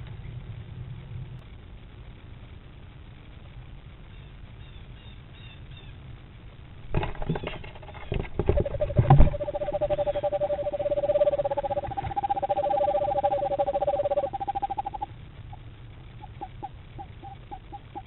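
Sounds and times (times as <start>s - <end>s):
knocks and scrabbles in a box: 6.9s - 8.7s
owls trilling: 7.4s - 18.0s.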